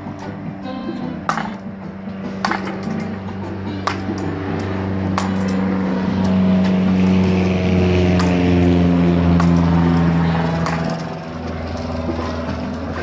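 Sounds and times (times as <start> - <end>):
loud low drone: 0.0 - 13.0.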